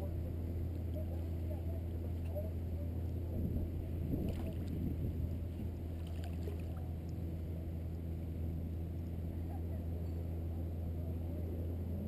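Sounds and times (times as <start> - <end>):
steady low rumble: 0.0 - 12.0
water lapping and splashing: 3.8 - 7.5
swim fins kicking water: 5.9 - 6.9.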